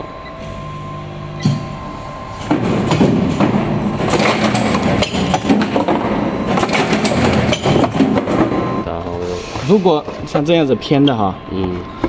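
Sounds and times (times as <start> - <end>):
riveting machine steady rattle: 2.0 - 8.8
mechanism clanks and knocks: 2.3 - 8.8.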